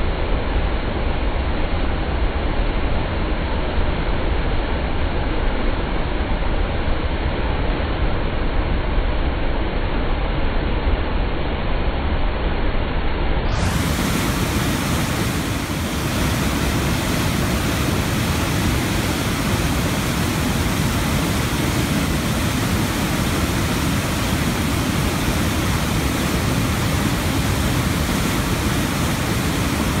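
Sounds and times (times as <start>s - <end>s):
waterfall rushing over rocks: 13.5s - 30.0s.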